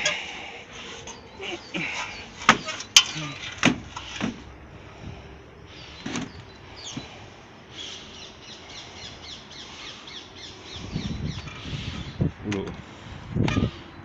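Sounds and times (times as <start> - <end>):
handling rumble and footsteps: 0.0 - 7.5.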